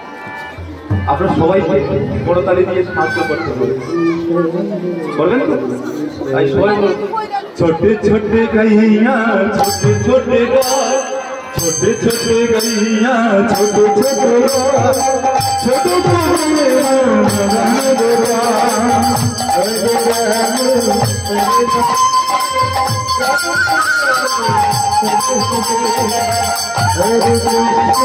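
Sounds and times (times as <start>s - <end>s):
hand cymbals striking: 9.6s - 28.0s
wavering melody line: 9.6s - 28.0s
drum beat: 13.6s - 28.0s.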